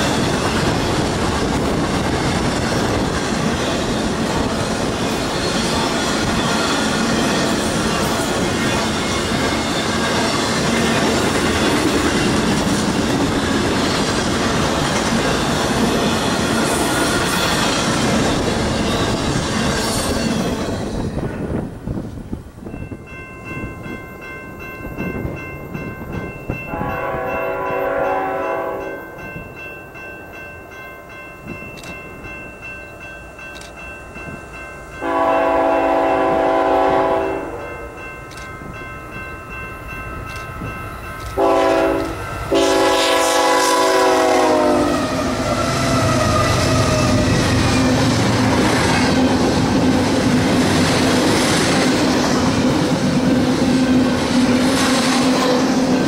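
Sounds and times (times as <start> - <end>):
freight train passing: 0.0 - 56.0
locomotive horn blasts: 26.7 - 29.0, 35.0 - 37.8, 41.4 - 45.4.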